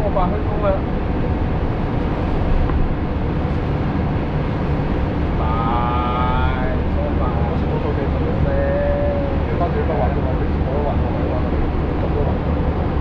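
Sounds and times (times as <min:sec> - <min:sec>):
vehicle engine and road rumble: 0:00.0 - 0:13.0.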